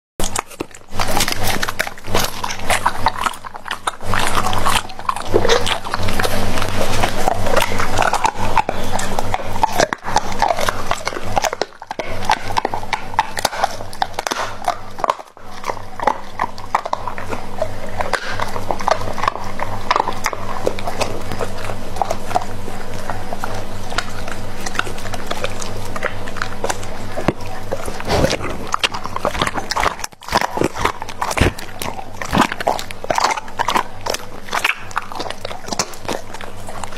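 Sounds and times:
dog chewing and licking meat: 0.2s - 36.9s
steady low hum: 0.2s - 36.9s.

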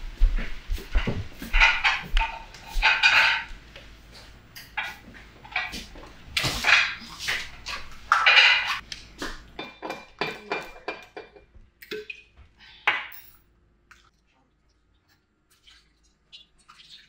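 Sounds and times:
dishes and cutlery clattering: 1.0s - 3.6s, 4.6s - 8.8s, 9.6s - 12.1s.

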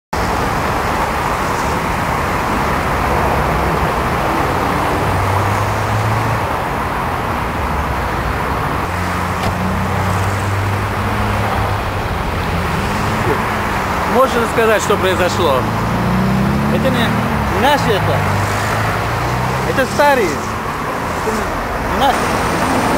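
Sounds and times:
traffic engine and tyre noise: 0.1s - 22.9s.

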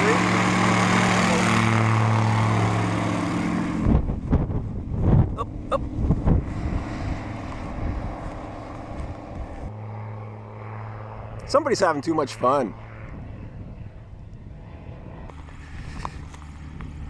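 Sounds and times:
aircraft engine and propeller drone: 0.0s - 17.0s
distant aircraft engine hum: 0.0s - 17.0s
wind buffeting microphone: 3.6s - 9.8s, 13.0s - 17.0s.

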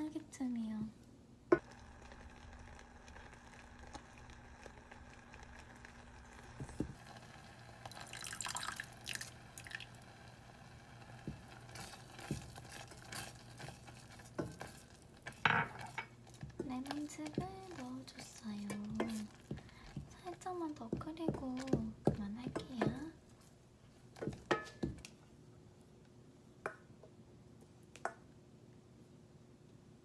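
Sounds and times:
jam bubbling and popping: 1.5s - 25.2s.

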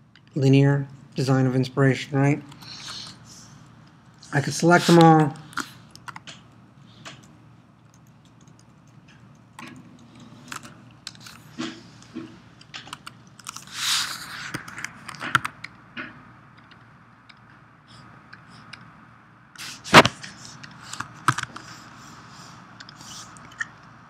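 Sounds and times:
keyboard and mouse clicks: 5.4s - 13.7s, 14.5s - 17.6s, 20.2s - 21.7s.

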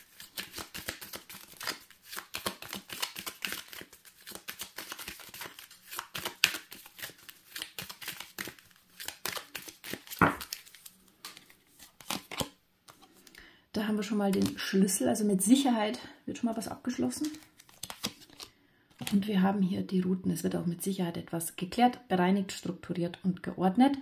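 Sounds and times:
cards shuffling: 0.0s - 13.2s, 17.0s - 19.2s.

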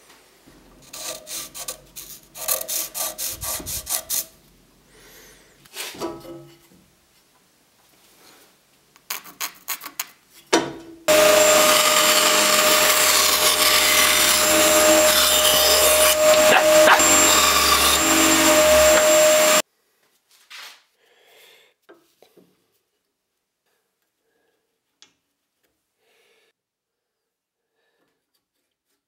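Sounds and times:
bandsaw cutting wood: 11.1s - 19.6s.

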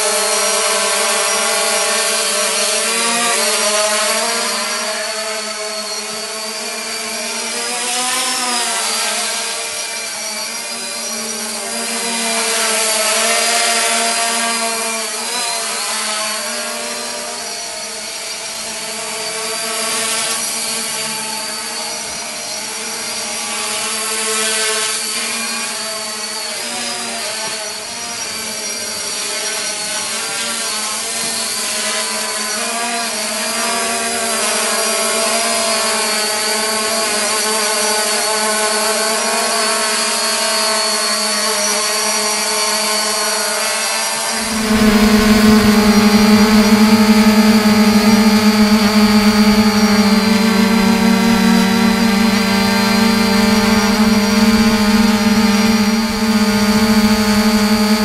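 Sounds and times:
quadcopter motors buzzing: 44.4s - 58.0s.

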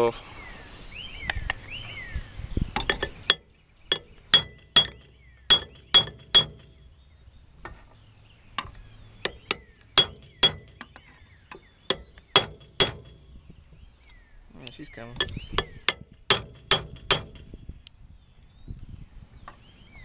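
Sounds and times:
hammer striking metal punch: 2.8s - 6.8s, 9.3s - 11.0s, 11.9s - 13.4s, 15.2s - 17.5s.

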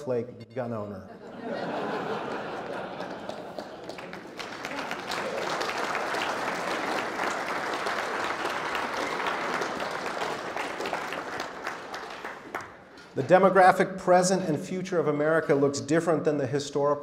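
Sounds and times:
audience applauding: 2.0s - 13.2s.

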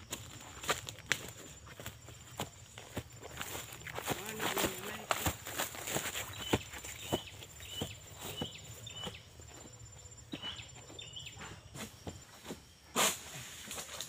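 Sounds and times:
footsteps through leaves and undergrowth: 0.0s - 9.8s.

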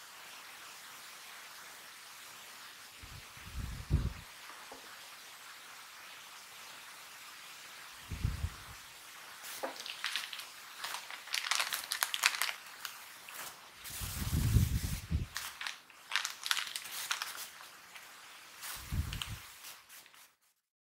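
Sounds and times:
plastic snack wrapper crackling: 9.5s - 14.5s, 15.1s - 20.2s.

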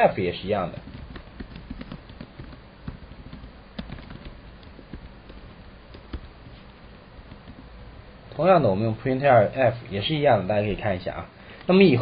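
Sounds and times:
computer keyboard typing: 0.5s - 7.8s.

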